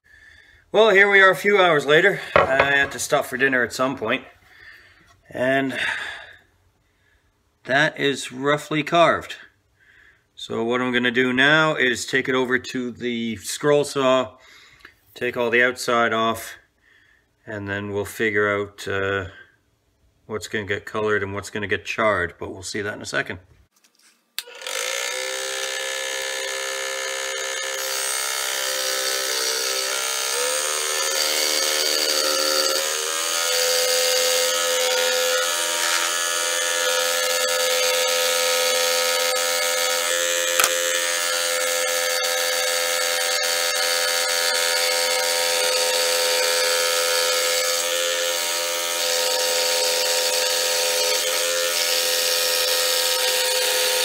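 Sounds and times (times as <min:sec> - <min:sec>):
scroll saw humming: 0:24.4 - 0:41.8
sharp click: 0:40.6 - 0:40.8.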